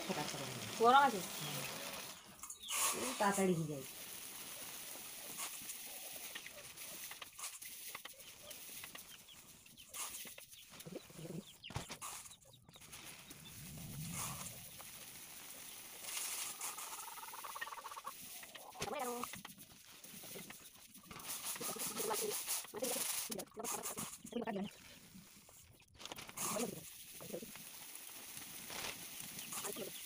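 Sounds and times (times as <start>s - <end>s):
puffed rice pouring rustle: 0.0s - 30.0s
hens clucking: 4.6s - 12.7s, 16.1s - 19.6s, 20.2s - 24.8s.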